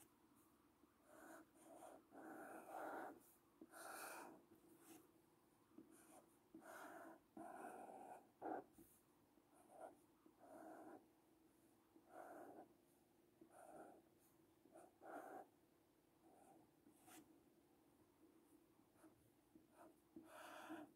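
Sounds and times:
marker scratching on paper: 1.1 - 5.0, 5.8 - 11.0, 14.8 - 15.5, 19.0 - 20.9.

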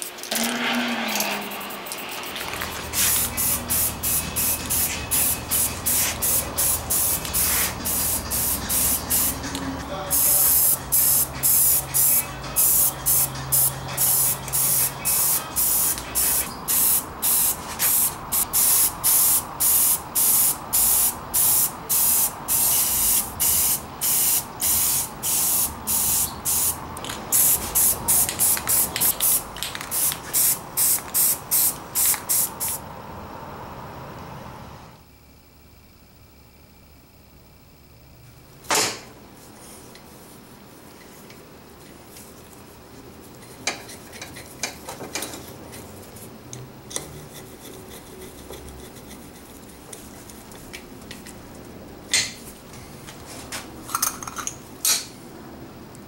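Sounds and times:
aerosol spray can hissing: 1.6 - 9.5, 10.1 - 32.8.

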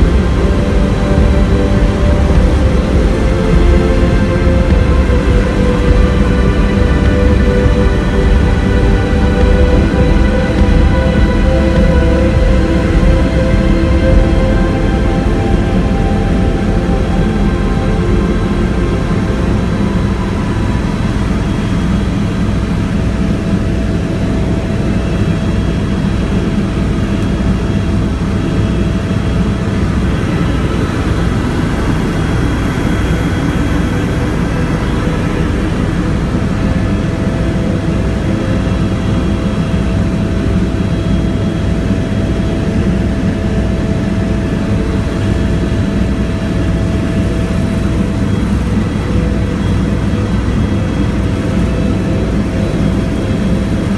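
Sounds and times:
rotor blades beating: 0.0 - 25.6
helicopter engine and rotor drone: 0.0 - 53.9
thin steady whine: 0.0 - 53.9.

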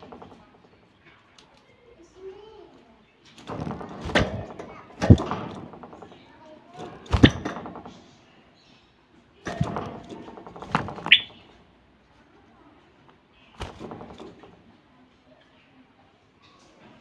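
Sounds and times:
bird rattling wire cage: 0.0 - 0.9, 3.4 - 8.4, 9.4 - 11.7, 13.6 - 14.8.

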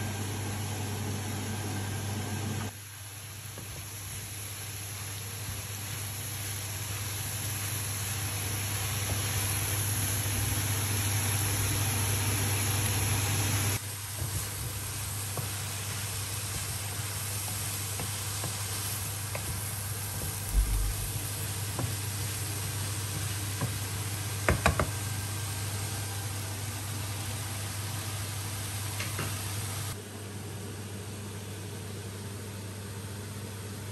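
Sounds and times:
vegetables sizzling in frying pan: 2.7 - 30.0
steady low hum: 20.3 - 21.5
wooden spatula knocking pan: 24.4 - 25.0.

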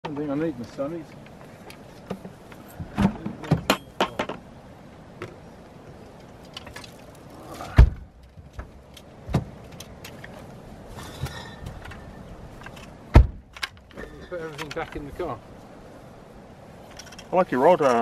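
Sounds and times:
knocks and clicks of gear: 7.8 - 10.5, 11.7 - 15.1.

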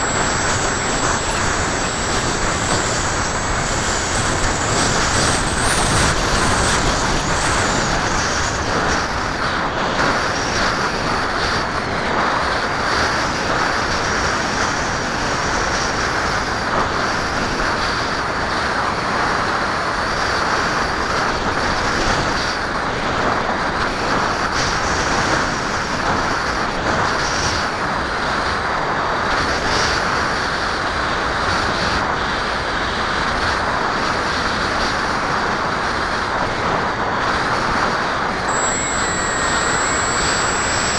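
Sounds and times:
electric motor and propeller whine: 0.0 - 18.0, 36.4 - 40.9
rushing wind noise: 0.0 - 29.4.

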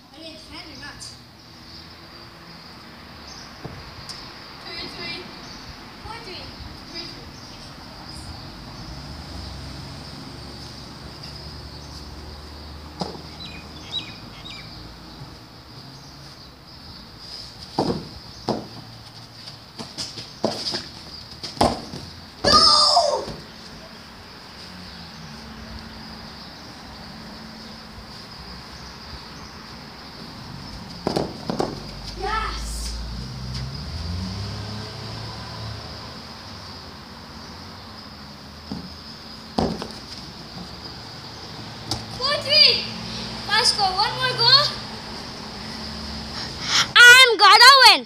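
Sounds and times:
outdoor background noise: 0.0 - 48.0
small bird chirping: 10.5 - 18.6
soccer ball being kicked: 13.0 - 13.3, 21.5 - 23.5, 31.0 - 31.9.

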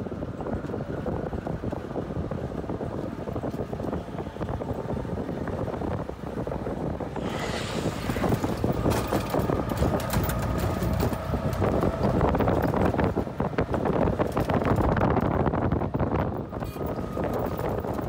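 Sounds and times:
wind rushing past microphone: 0.0 - 18.0
vehicle body rattling: 7.1 - 18.0.

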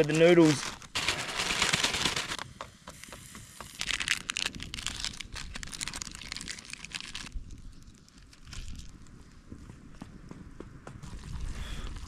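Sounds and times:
plastic packet crinkling: 0.0 - 2.4, 3.8 - 8.9.

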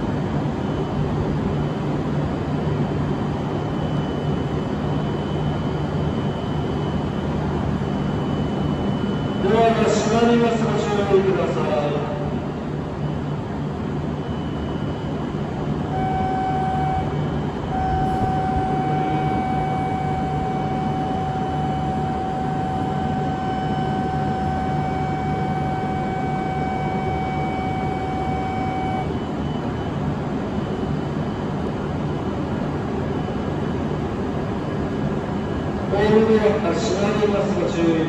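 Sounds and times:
electronic departure tone: 3.7 - 13.3, 13.9 - 31.6
train humming: 11.4 - 30.4.

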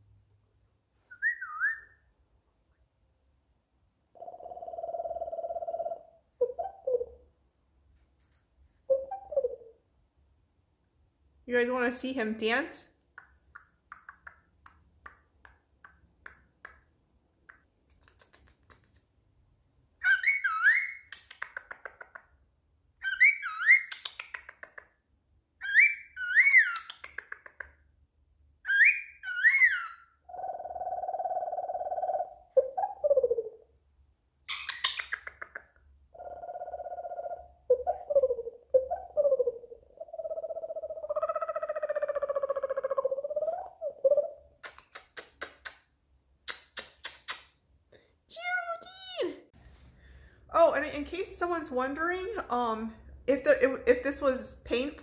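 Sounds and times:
cockatiel whistling: 1.1 - 2.0, 20.0 - 21.0, 23.0 - 24.0, 25.6 - 26.9, 28.7 - 30.0.

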